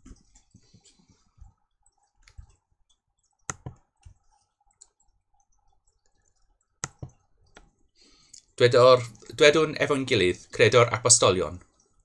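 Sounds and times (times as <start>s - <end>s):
computer clicks and taps: 1.8s - 7.8s.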